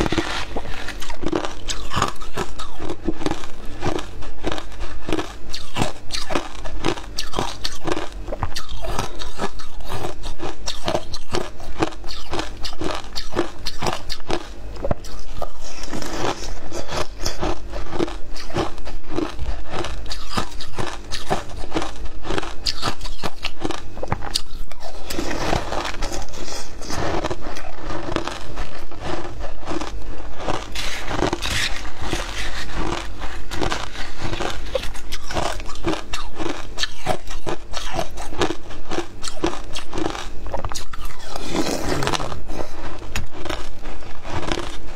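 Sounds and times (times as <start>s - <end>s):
crunching and chewing ice: 0.0s - 44.9s.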